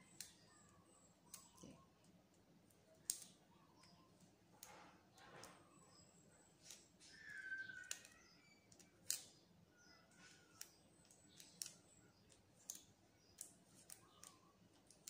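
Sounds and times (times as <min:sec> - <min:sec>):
faint squeaks: 0:04.5 - 0:08.9.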